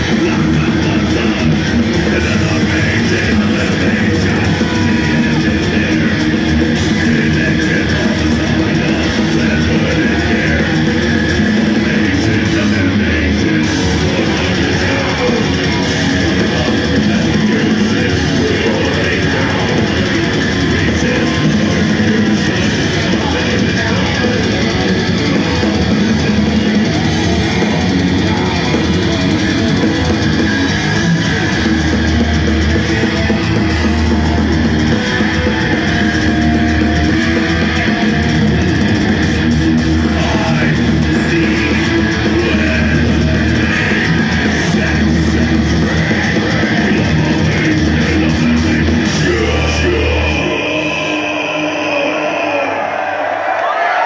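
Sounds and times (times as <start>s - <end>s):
bass guitar: 0.0s - 52.8s
drum kit: 0.0s - 52.8s
distorted electric guitars: 0.0s - 54.0s.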